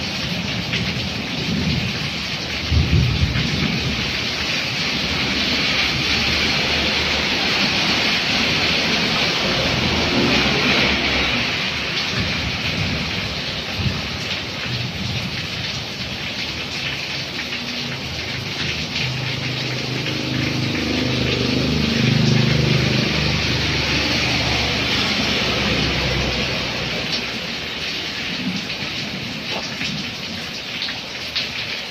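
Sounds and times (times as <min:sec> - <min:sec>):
heavy rain on road and awning: 0:00.0 - 0:31.9
truck passing on wet road: 0:00.0 - 0:31.9.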